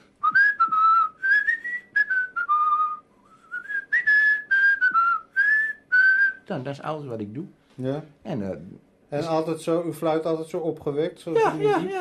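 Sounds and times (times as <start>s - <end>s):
man whistling a tune: 0.2s - 6.5s.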